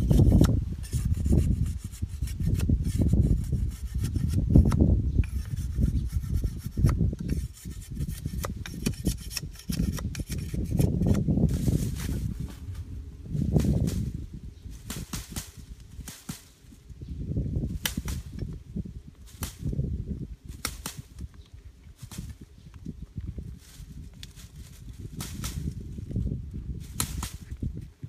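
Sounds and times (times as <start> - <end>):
knife scraping bamboo: 0.0 - 11.3.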